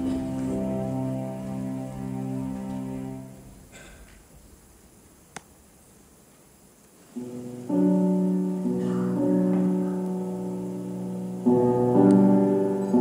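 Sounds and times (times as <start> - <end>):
sustained keyboard chords: 0.0 - 3.7, 7.2 - 13.0.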